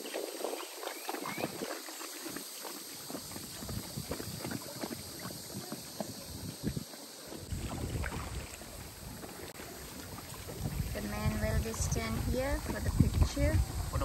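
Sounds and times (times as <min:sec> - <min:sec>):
water lapping and splashing: 0:00.0 - 0:14.0
wind buffeting microphone: 0:03.0 - 0:14.0.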